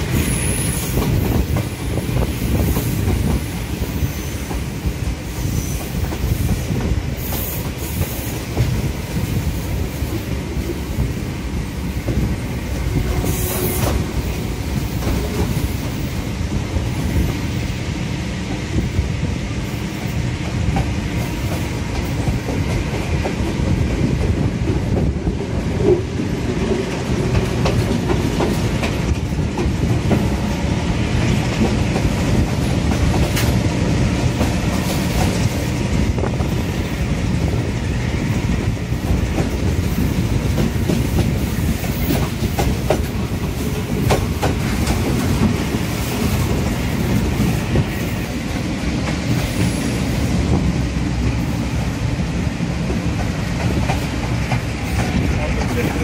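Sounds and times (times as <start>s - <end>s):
clickety-clack over rail joints: 0.0s - 56.0s
train wheels rumbling on rails: 0.0s - 56.0s.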